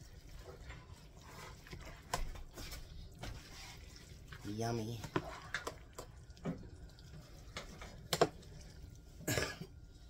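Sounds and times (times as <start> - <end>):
wet squelching of stirred sauce: 0.0 - 10.0
person coughing: 9.2 - 9.7.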